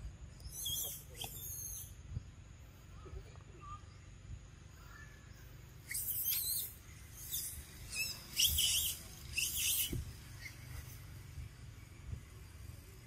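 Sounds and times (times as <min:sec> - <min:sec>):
baby monkey squealing: 0:00.4 - 0:02.0, 0:05.9 - 0:10.6.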